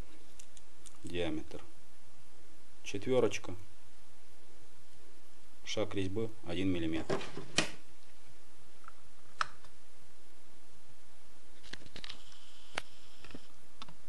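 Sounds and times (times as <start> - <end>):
faint high whine: 9.8 - 14.0.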